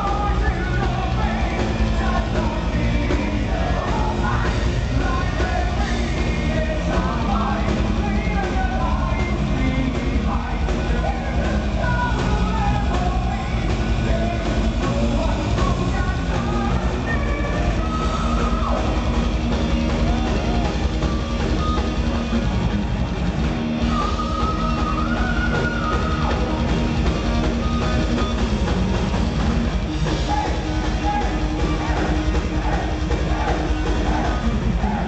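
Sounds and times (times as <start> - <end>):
person singing: 0.0 - 19.2
distorted electric guitar: 0.0 - 35.0
drum kit: 0.0 - 35.0.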